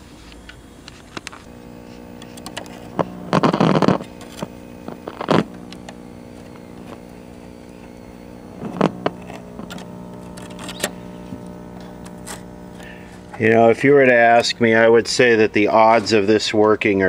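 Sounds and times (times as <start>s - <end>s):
television speaker buzzing hum: 0.0s - 17.0s
loud crackling bursts: 1.4s - 15.7s
scattered clicks: 2.1s - 13.4s.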